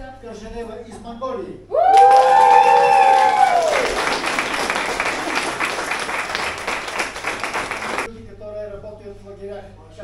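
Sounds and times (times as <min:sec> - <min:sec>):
crowd cheering: 0:01.8 - 0:08.1
people clapping: 0:01.8 - 0:08.1.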